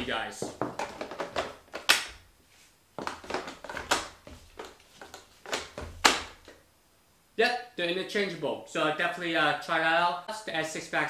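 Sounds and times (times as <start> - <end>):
plastic rubbing and handling: 0.4 - 1.9, 2.5 - 6.6
sharp plastic clicks and knocks: 3.0 - 6.6.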